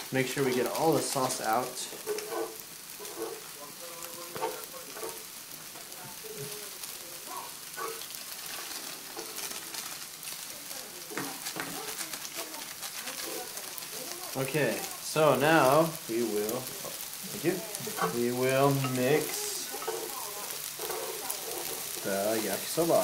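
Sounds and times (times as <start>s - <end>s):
noodles sizzling in skillet: 0.0s - 23.0s
chopsticks clicking on pan: 17.9s - 22.1s.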